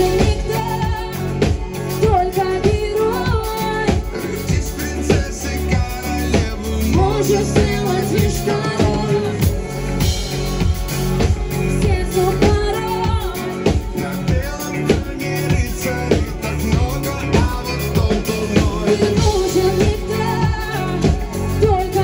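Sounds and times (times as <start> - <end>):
drum beat: 0.0 - 22.0
electric guitar: 0.0 - 22.0
person singing: 0.0 - 22.0.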